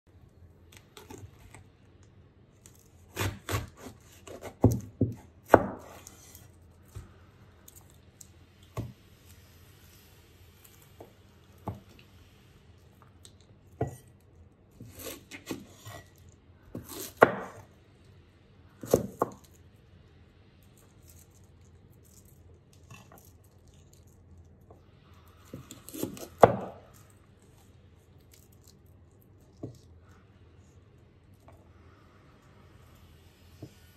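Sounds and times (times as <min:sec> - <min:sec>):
knife cutting cabbage: 0:02.6 - 0:06.5, 0:14.8 - 0:17.7, 0:25.4 - 0:27.1.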